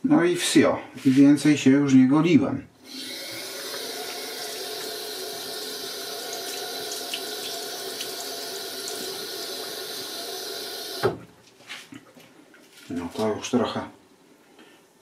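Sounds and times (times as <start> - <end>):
tap water running into sink: 3.0 - 11.2.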